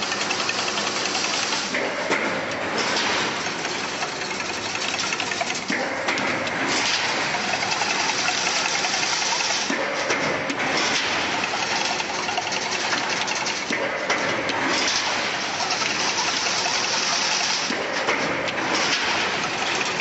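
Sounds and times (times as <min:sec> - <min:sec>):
fine rapid ticking: 0:00.0 - 0:01.7, 0:03.5 - 0:05.8, 0:07.2 - 0:09.7, 0:11.3 - 0:13.7, 0:15.6 - 0:17.7
fence weaving machine clatter: 0:00.0 - 0:20.0.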